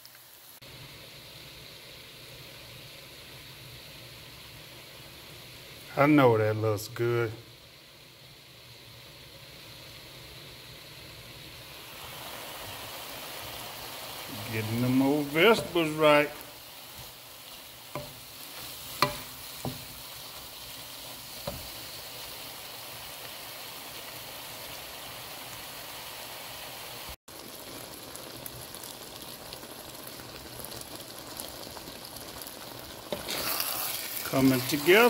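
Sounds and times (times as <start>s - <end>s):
food sizzling in a wok: 0.0s - 35.0s
wooden spatula knocking a pan: 17.9s - 20.1s, 21.4s - 21.8s.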